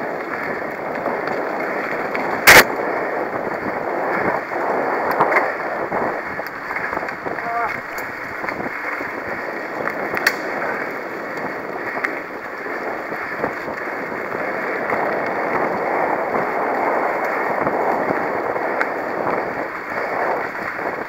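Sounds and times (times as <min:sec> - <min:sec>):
tyres rushing on dirt: 0:00.0 - 0:21.0
bike rattling clicks and knocks: 0:05.0 - 0:15.9.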